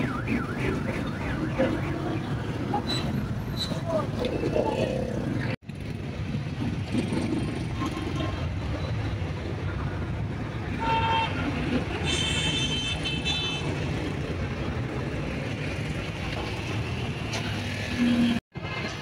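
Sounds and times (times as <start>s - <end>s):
higher vehicle horn: 10.8s - 13.8s
vehicle horn: 10.8s - 13.8s.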